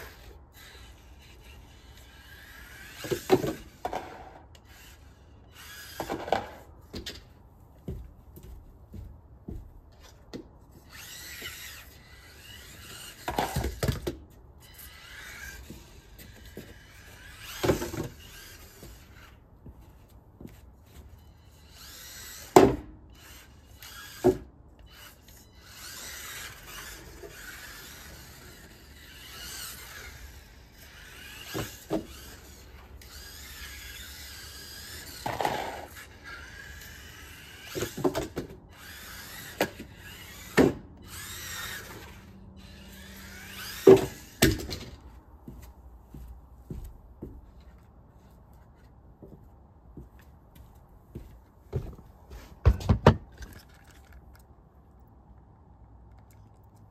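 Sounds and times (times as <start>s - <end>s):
toy car electric motor whining: 0.0s - 6.7s, 10.7s - 19.4s, 20.9s - 45.0s
knocks on wooden ramps: 52.6s - 53.3s.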